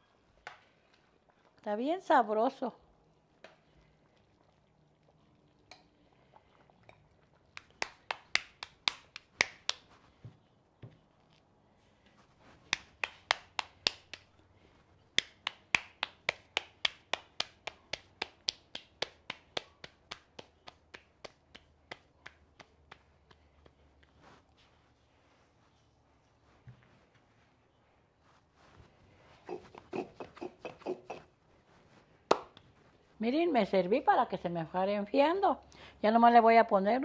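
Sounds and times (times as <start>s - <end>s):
hands patting dough: 7.6s - 11.1s, 12.3s - 14.3s, 15.2s - 24.9s, 29.5s - 32.8s.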